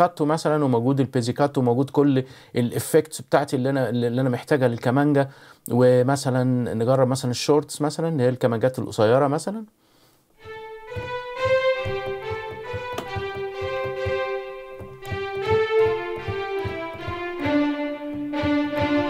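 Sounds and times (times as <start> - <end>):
violin section playing short bowed notes: 10.4 - 19.0.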